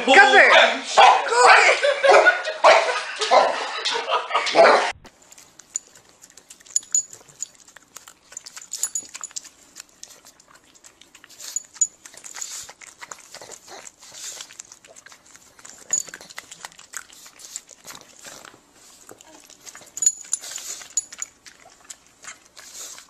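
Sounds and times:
dog breathing noises: 5.2s - 23.0s.

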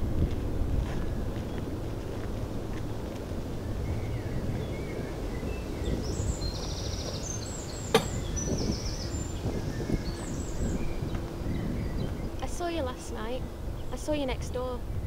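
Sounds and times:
steady low rumble: 0.0s - 15.0s
footsteps on gravel: 0.2s - 3.4s
small birds chirping: 1.0s - 15.0s
gate latch click: 7.9s - 8.2s.

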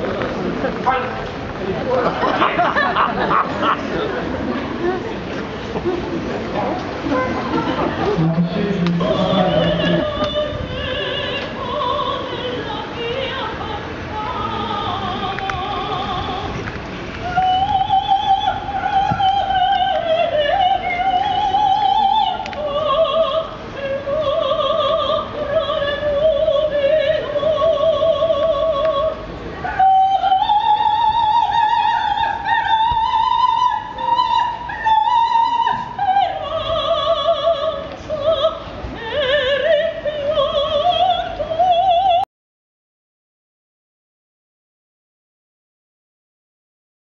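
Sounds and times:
woman singing opera: 7.2s - 16.6s, 17.2s - 42.3s.

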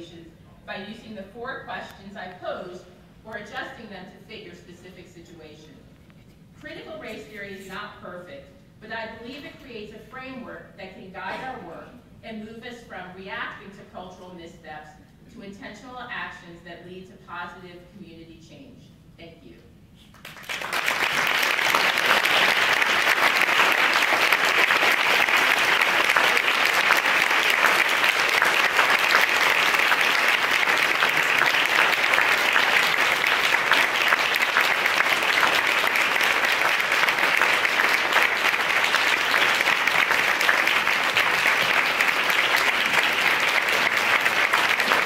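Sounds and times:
audience applause: 20.2s - 45.0s.

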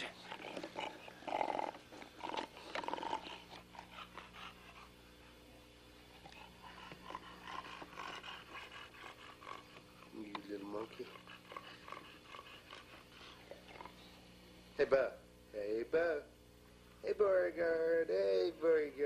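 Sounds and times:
dogs panting: 0.0s - 14.4s.

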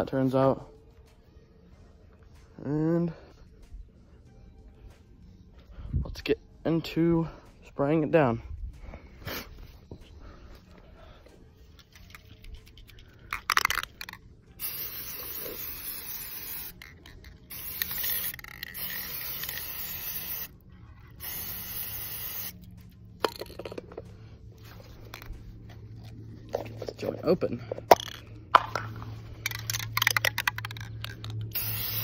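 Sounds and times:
spray paint can hissing: 11.9s - 23.9s, 27.9s - 32.0s.

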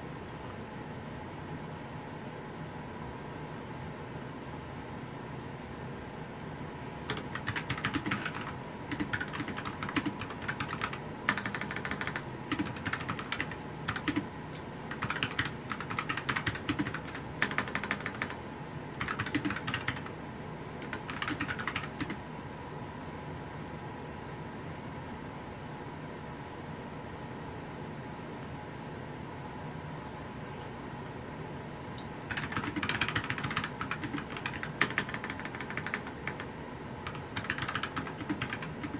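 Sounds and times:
fast typing on keyboard: 7.1s - 14.3s, 14.9s - 18.4s, 19.0s - 20.1s, 20.8s - 22.2s, 32.3s - 38.9s.

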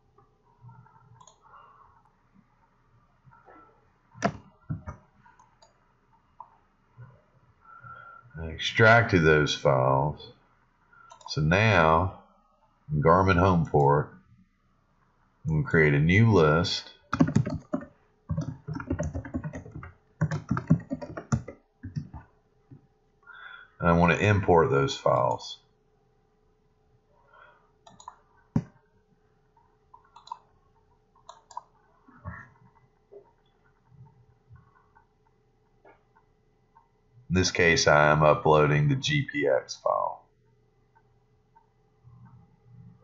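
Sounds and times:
computer mouse clicks: 0.6s - 1.4s, 4.2s - 5.8s, 11.1s - 11.3s, 17.1s - 22.3s, 27.8s - 28.8s, 29.6s - 36.9s
typing on computer keyboard: 17.1s - 22.3s, 30.0s - 30.5s.

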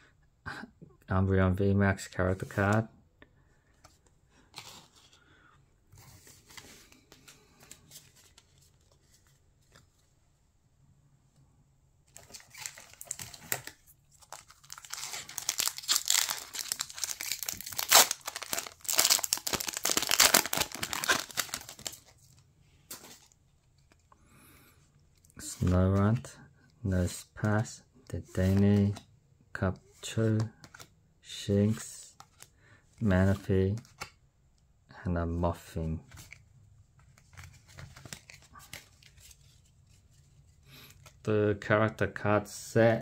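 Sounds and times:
foil wrapper tearing and crinkling: 12.3s - 22.0s.

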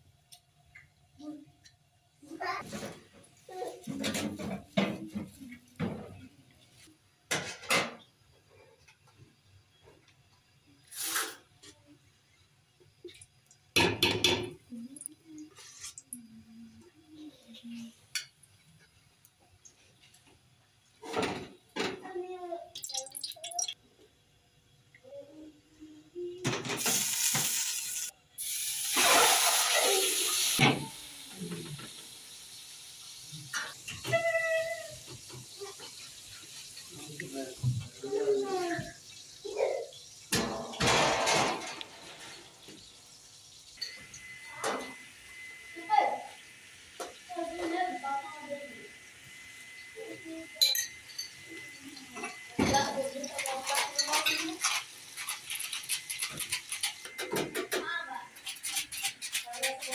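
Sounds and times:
chicken sizzling in hot oil: 10.8s - 11.4s, 26.8s - 59.3s
metal spoon clinking on jar: 50.6s - 51.4s
clattering and handling noise: 52.2s - 59.9s.

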